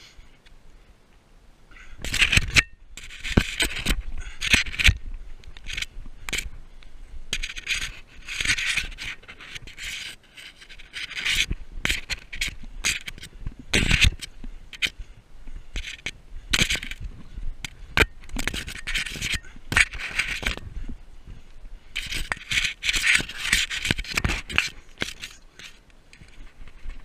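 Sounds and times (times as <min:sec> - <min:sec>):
rope netting rustling on camera: 0:15.7 - 0:27.0.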